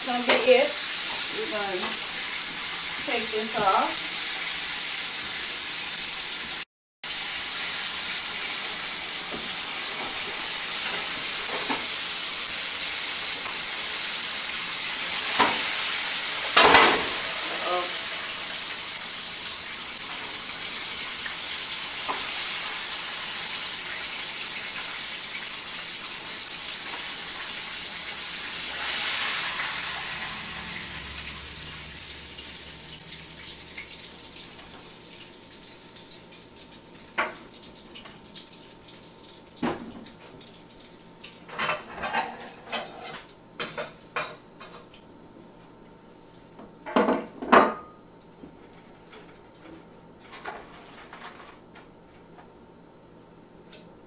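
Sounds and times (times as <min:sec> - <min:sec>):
chicken sizzling in hot oil: 0:00.0 - 0:45.1
utensils and dishes clinking: 0:41.5 - 0:44.9.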